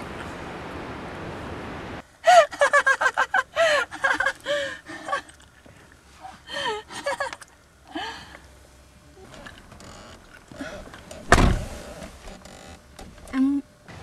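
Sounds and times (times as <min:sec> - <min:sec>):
woman crying out and gasping: 0:02.2 - 0:02.6, 0:03.5 - 0:05.2, 0:06.2 - 0:07.2.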